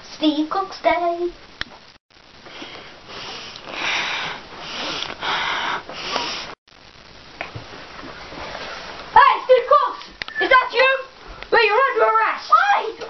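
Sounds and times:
person sniffing loudly: 0:02.5 - 0:06.6.

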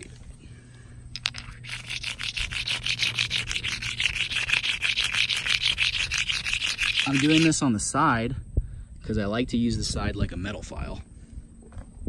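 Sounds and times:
stone scraping on concrete: 0:01.2 - 0:07.6.

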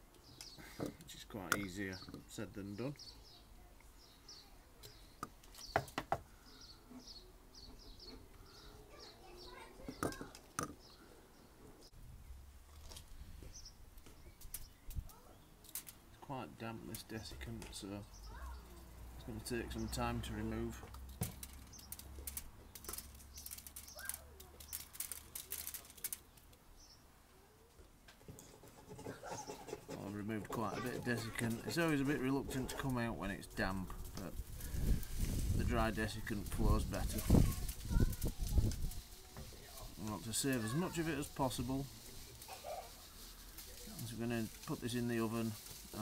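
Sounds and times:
small birds chirping: 0:00.0 - 0:46.0
granules clicking on metal: 0:14.4 - 0:16.0, 0:20.9 - 0:26.6, 0:33.6 - 0:46.0.

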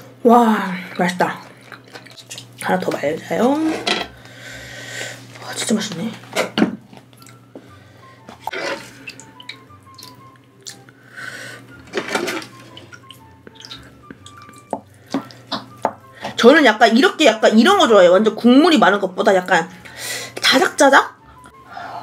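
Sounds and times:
liquid splashing and dripping: 0:01.5 - 0:02.8, 0:08.5 - 0:10.9, 0:12.0 - 0:15.8.

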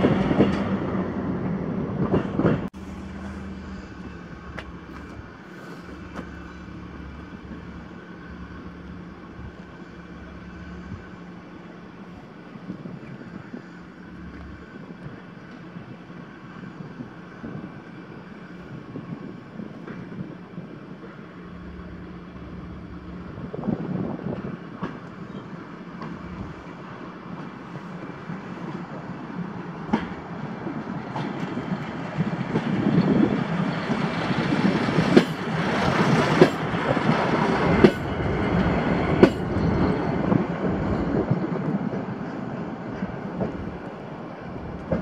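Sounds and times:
rail motor car engine: 0:00.0 - 0:45.0
wheels clacking over rail joints: 0:29.7 - 0:45.0.

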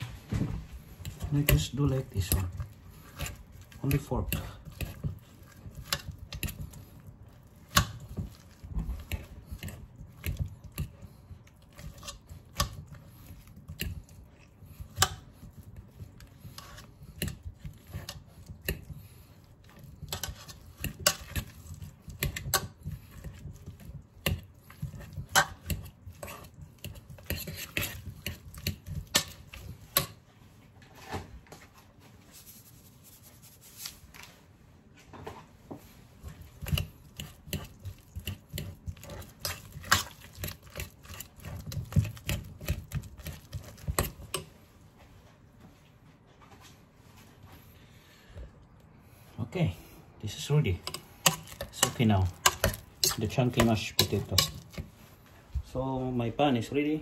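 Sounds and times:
fork mashing potatoes: 0:00.7 - 0:30.3, 0:35.8 - 0:44.8, 0:49.2 - 0:56.2.

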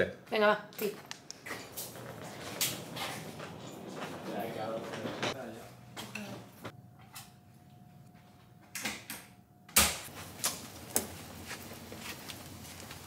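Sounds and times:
footsteps: 0:00.8 - 0:06.8, 0:10.1 - 0:13.0
suitcases rolling on carpet: 0:01.4 - 0:05.6, 0:10.1 - 0:13.0.

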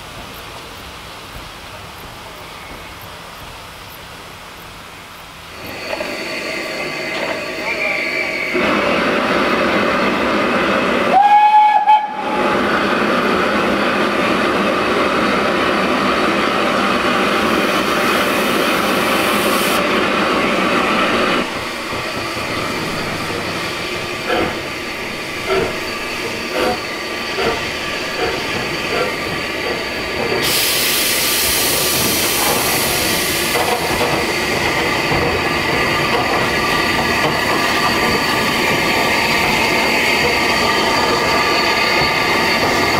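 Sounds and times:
steam hissing: 0:05.4 - 0:42.9
steam locomotive exhaust beats: 0:05.5 - 0:42.9
steam whistle blast: 0:11.1 - 0:12.5.

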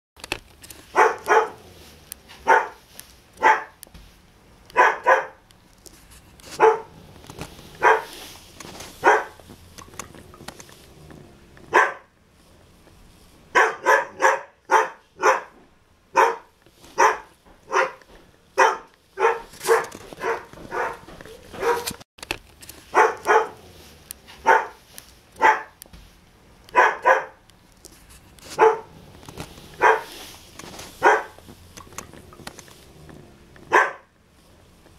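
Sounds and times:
dog barking: 0:00.9 - 0:01.7, 0:02.3 - 0:02.8, 0:03.4 - 0:03.8, 0:04.7 - 0:05.4, 0:06.6 - 0:07.0, 0:07.8 - 0:08.2, 0:09.0 - 0:09.4, 0:11.7 - 0:12.1, 0:13.5 - 0:18.0, 0:18.6 - 0:22.0, 0:22.9 - 0:23.7, 0:24.3 - 0:24.8, 0:25.4 - 0:25.8, 0:26.7 - 0:27.4, 0:28.6 - 0:29.0, 0:29.8 - 0:30.1, 0:31.0 - 0:31.4, 0:33.7 - 0:34.1.

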